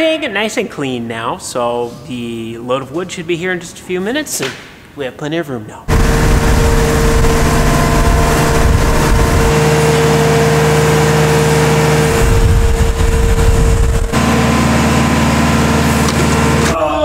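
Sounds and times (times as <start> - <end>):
diesel engine running: 5.9 - 16.8
high whine: 5.9 - 16.8.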